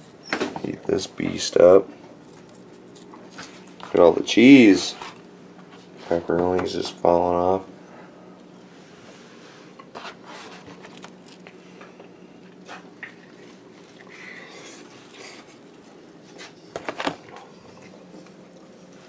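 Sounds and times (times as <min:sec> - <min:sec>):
low room hum: 0:00.0 - 0:19.0
pizza being bitten and chewed: 0:02.1 - 0:04.0, 0:10.1 - 0:19.0.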